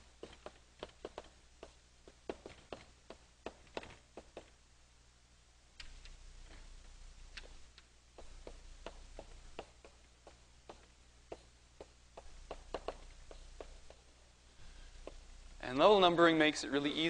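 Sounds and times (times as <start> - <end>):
chalk tapping on a blackboard: 8.2 - 14.0.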